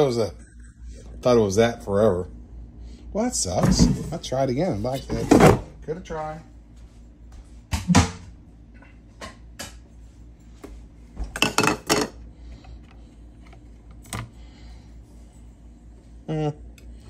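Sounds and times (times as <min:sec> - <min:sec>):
kitchenware clicks and taps: 0:11.2 - 0:12.2.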